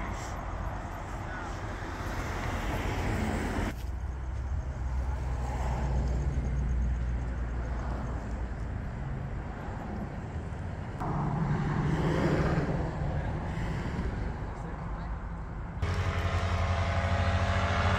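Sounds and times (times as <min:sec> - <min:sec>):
road traffic rumble: 0:00.0 - 0:17.9
vehicle passing by: 0:11.0 - 0:15.1, 0:15.8 - 0:17.9.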